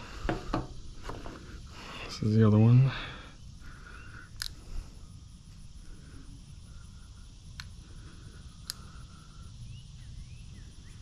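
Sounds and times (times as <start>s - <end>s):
insects chirping: 0.0s - 11.0s
bird calls: 2.9s - 4.8s, 8.6s - 11.0s
sharp clicks: 4.3s - 4.6s, 7.5s - 7.8s, 8.6s - 8.9s.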